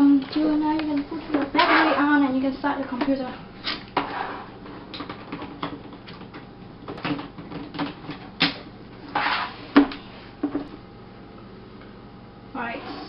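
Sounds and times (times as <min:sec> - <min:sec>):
short scrape: 0:09.1 - 0:09.8.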